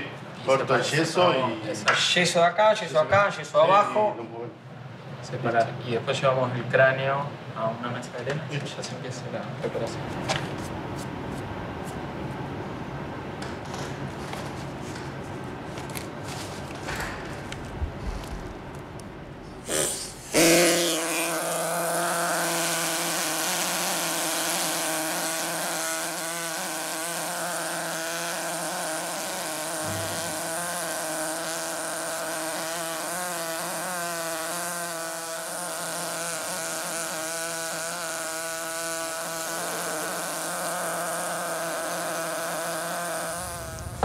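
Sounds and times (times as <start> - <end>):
small power tool buzzing: 19.7 - 44.0.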